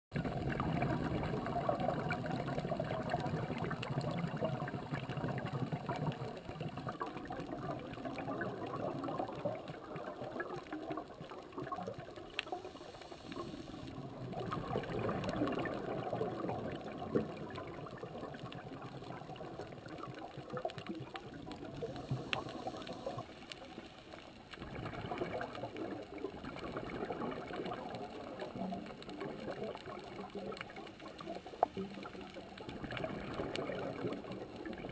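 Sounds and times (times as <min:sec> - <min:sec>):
underwater bubbling and gurgling: 0:00.1 - 0:34.9
faint sharp clicks: 0:10.3 - 0:24.7, 0:25.6 - 0:34.9.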